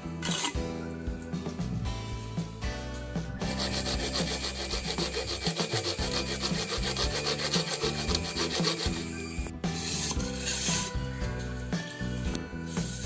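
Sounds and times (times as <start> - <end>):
background music: 0.0 - 13.0
hacksaw cutting plastic pipe: 3.4 - 11.0.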